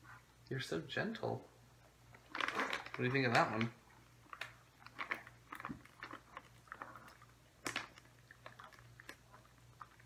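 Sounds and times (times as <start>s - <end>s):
dog chewing: 2.1s - 10.0s.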